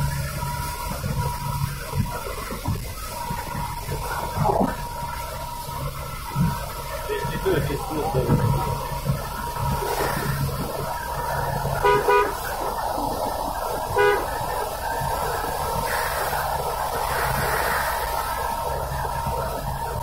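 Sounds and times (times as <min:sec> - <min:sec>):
car road and engine noise: 0:00.0 - 0:20.0
vehicle horn toots: 0:11.7 - 0:12.6, 0:13.9 - 0:14.5.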